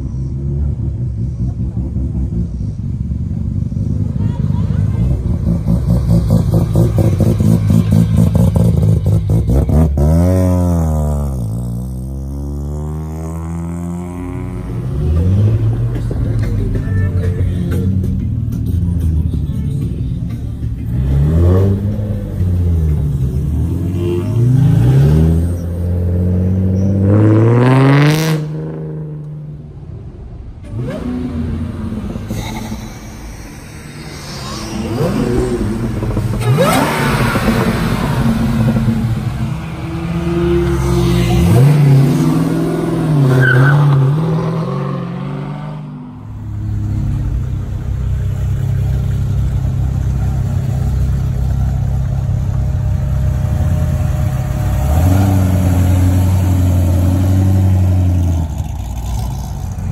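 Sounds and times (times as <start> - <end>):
engine running at low revs: 0.0 - 43.1
sports car engines revving: 0.0 - 59.9.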